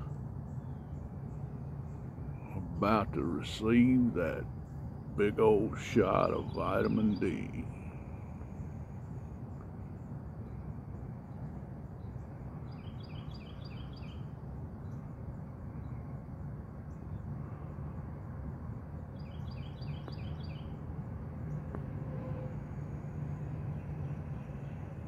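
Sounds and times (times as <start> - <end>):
steady low rumble: 0.0 - 12.8
songbird singing: 0.0 - 18.0, 18.6 - 22.0, 22.6 - 25.0.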